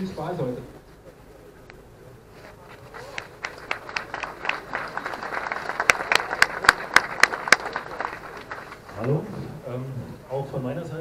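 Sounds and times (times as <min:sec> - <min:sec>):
crowd applauding: 0:02.6 - 0:09.3
loud close claps: 0:02.9 - 0:09.2.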